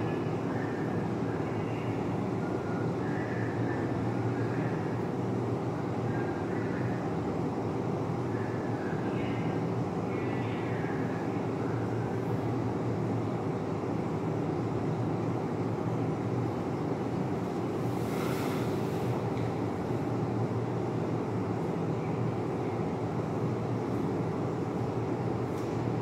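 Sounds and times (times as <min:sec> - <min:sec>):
brief hiss: 0:17.9 - 0:19.1.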